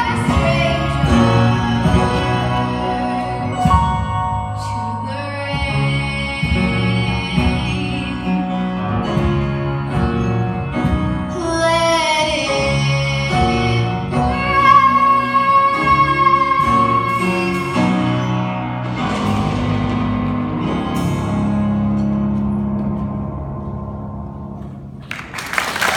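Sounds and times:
woman singing a slow ballad: 0.0 - 8.9, 11.3 - 18.6
instrumental accompaniment: 0.0 - 25.9.

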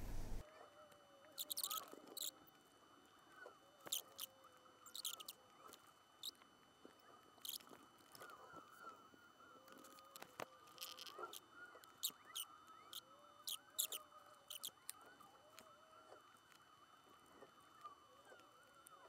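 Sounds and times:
tweezers clicking and scratching: 13.4 - 15.0.

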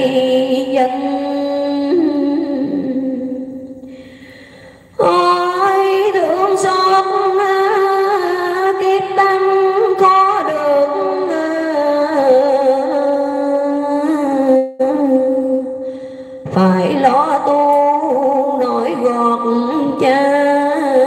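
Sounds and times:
woman chanting a poem: 16.6 - 21.0.

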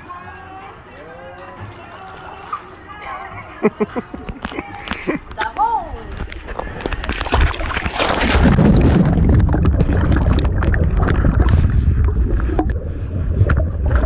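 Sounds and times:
underwater rushing and bubbling: 6.2 - 14.0
person splashing into water: 6.8 - 14.0.

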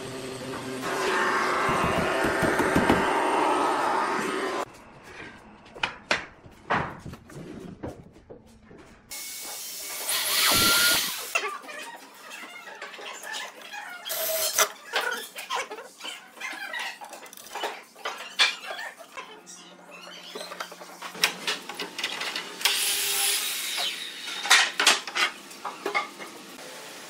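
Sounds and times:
power drill whining: 0.8 - 4.7, 10.0 - 11.3
knocks on wood: 1.7 - 3.0.

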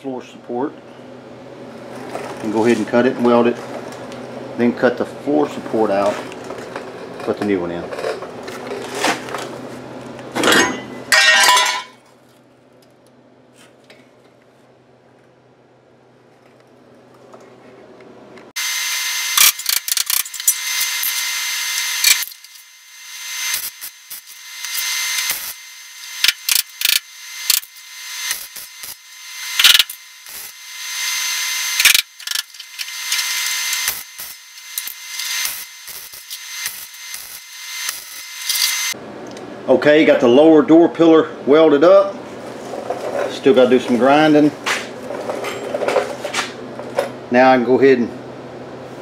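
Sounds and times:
welding arc crackling and hissing: 18.6 - 39.0.

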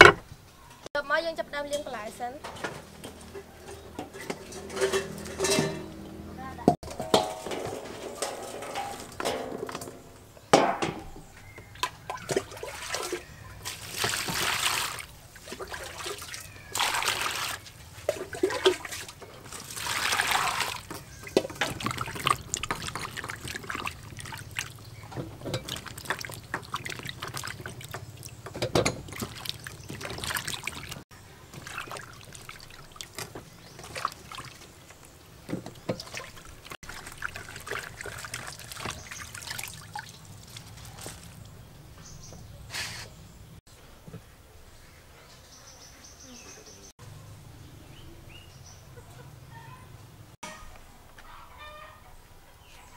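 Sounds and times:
water splashing in bowl: 11.6 - 41.6.

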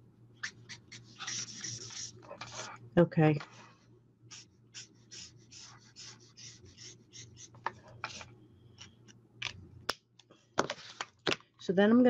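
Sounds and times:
marker scratching on cardstock: 0.4 - 2.7, 4.3 - 8.2.

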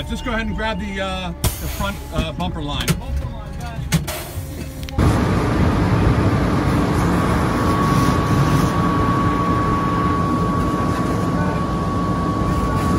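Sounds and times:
fire engine pump drone: 0.0 - 12.9
high steady whine: 4.2 - 12.9.

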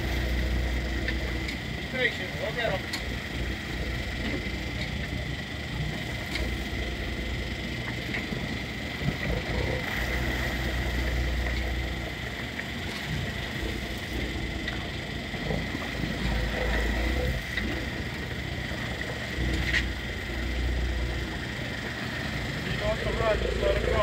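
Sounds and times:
boat engines rumbling: 0.0 - 24.0.

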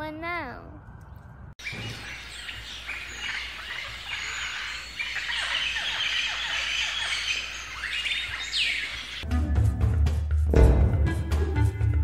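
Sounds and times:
birds chirping and calling: 1.6 - 9.3.

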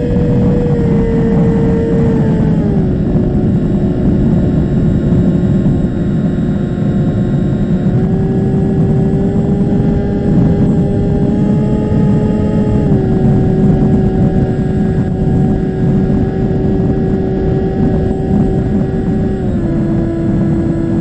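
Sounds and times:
electric motor whine: 0.0 - 21.0
wind rush: 0.0 - 21.0.

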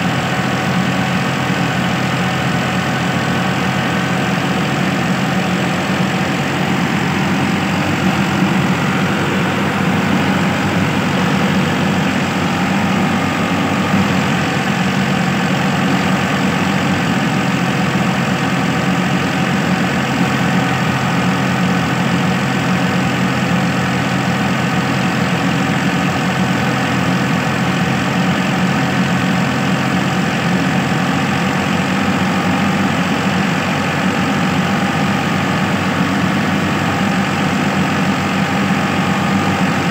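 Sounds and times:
thresher running noise: 0.0 - 28.4
tractor diesel engine running: 0.0 - 39.9.

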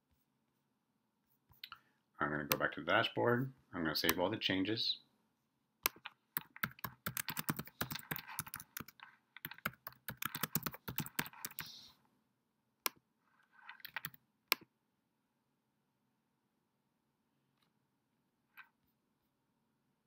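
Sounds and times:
typing on computer keyboard: 5.9 - 11.7, 13.7 - 14.6.

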